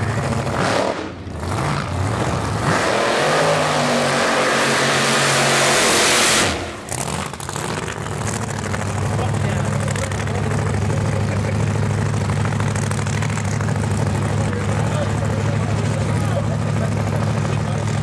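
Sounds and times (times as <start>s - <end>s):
car engine at full throttle: 0.0s - 18.0s.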